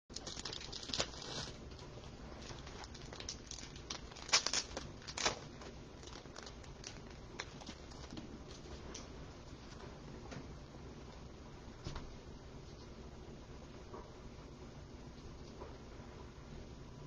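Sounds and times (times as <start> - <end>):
packaging crinkling and clicking: 0.1 - 9.1.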